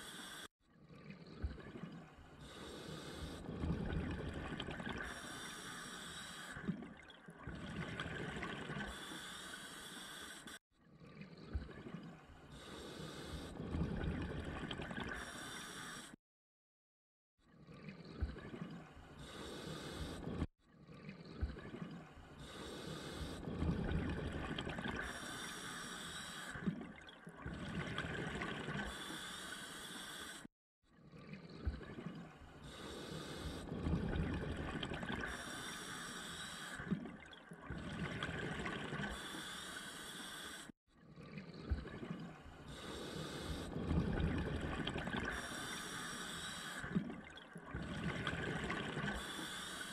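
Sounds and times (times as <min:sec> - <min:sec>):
regulator hissing inhalations: 0:00.0 - 0:00.5, 0:05.0 - 0:06.6, 0:08.9 - 0:10.6, 0:19.2 - 0:20.4, 0:22.4 - 0:23.5, 0:25.0 - 0:26.6, 0:28.9 - 0:30.5, 0:32.6 - 0:33.7, 0:35.3 - 0:36.8, 0:39.1 - 0:40.8, 0:42.7 - 0:43.8, 0:45.3 - 0:47.0, 0:49.1 - 0:49.9
bubbling exhalations: 0:03.0 - 0:05.4, 0:06.5 - 0:09.2, 0:21.0 - 0:25.8, 0:26.4 - 0:29.4, 0:31.2 - 0:39.5, 0:41.2 - 0:49.9.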